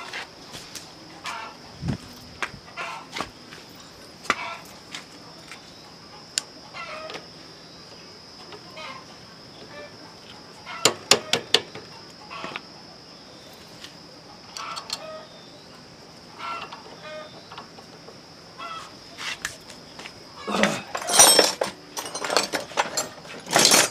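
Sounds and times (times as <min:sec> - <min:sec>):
chickens clucking: 0:08.4 - 0:10.9.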